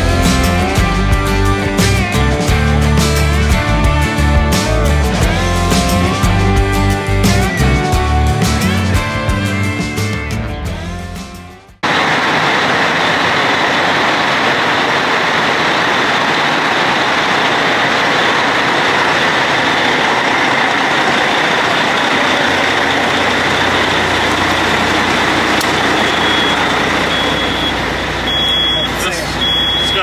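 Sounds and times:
heavy truck engine running: 0.0 - 30.0
truck reversing beeps: 18.9 - 30.0.

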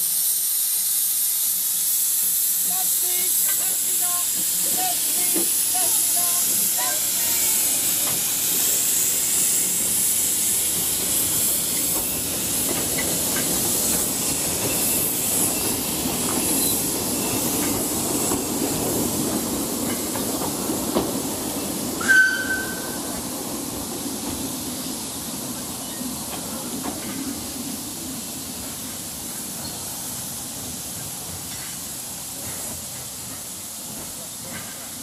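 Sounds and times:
steam locomotive hissing: 0.0 - 35.0
short high squeal: 22.0 - 23.1.

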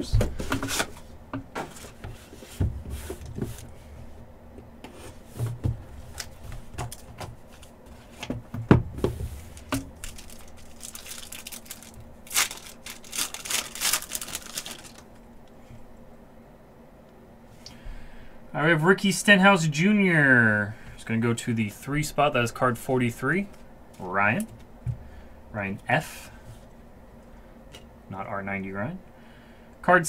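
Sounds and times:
foil wrapper tearing and crinkling: 9.6 - 15.1.

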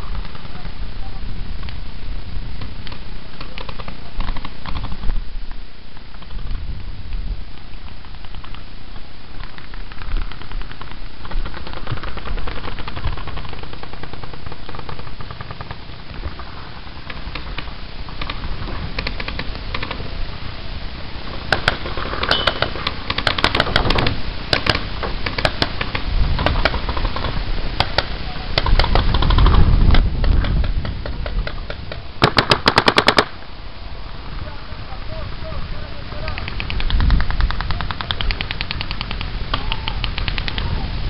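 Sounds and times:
wind rumble on microphone: 0.0 - 41.0
paintball markers firing: 2.6 - 5.2, 7.6 - 8.7, 9.4 - 20.0, 21.4 - 33.3, 36.2 - 40.7.

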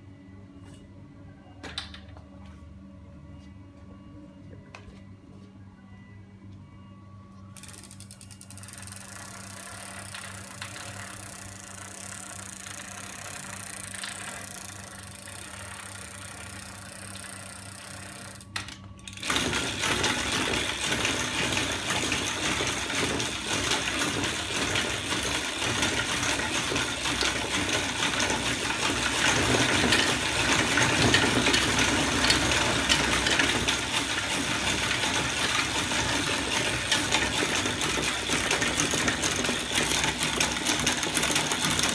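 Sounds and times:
bicycle chain whirring and rattling: 7.6 - 41.9.

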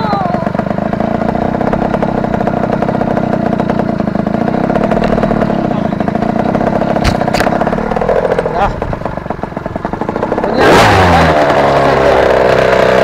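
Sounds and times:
dirt bike engine idling: 0.0 - 13.0.

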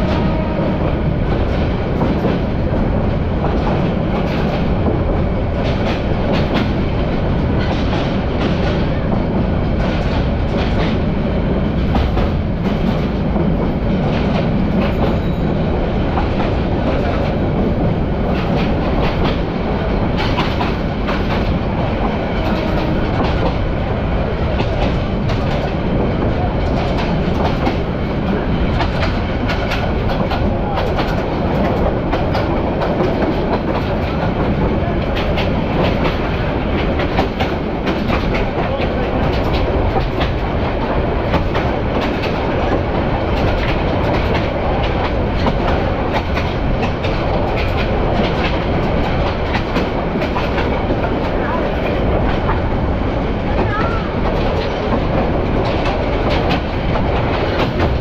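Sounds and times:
train rumbling: 0.0 - 58.0.

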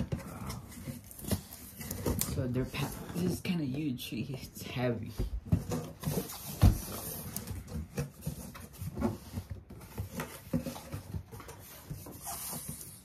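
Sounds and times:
cardboard box scraping and rustling: 5.5 - 13.0.

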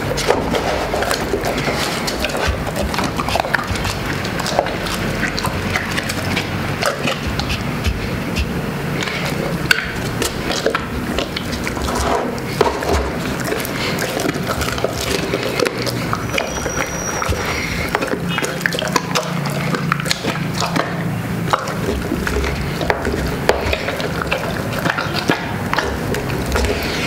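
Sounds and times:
bones cracking and crunching: 0.0 - 27.0
dog smacking and slobbering: 0.0 - 27.0.

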